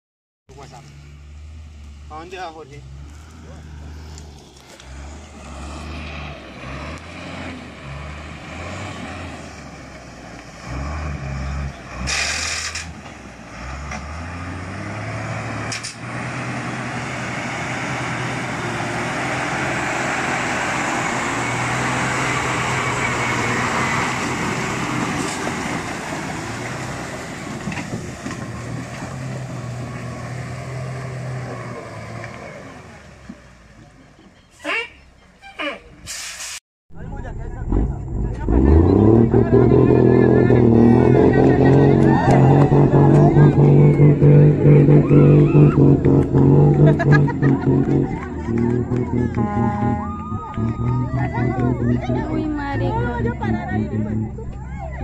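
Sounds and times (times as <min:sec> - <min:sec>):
truck engine driving through mud: 0:00.6 - 0:34.5, 0:37.0 - 0:55.0
short loud hiss: 0:36.1 - 0:36.6.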